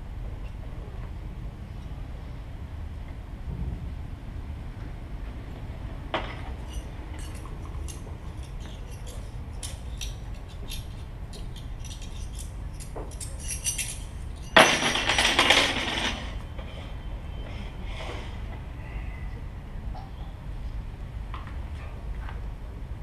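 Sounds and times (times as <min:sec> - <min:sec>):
steady low hum: 0:00.0 - 0:23.0
scraping rattle: 0:06.2 - 0:16.4.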